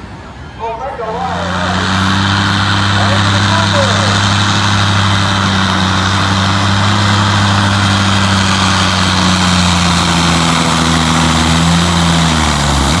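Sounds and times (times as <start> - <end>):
diesel truck engine at full throttle: 0.0 - 13.0.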